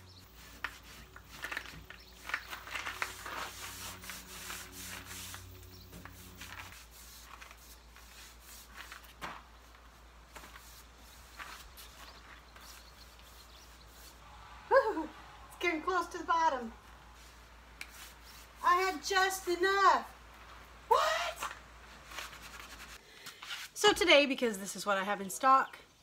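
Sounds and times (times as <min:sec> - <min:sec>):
rag wiping wood: 0:00.2 - 0:14.2, 0:17.1 - 0:19.3.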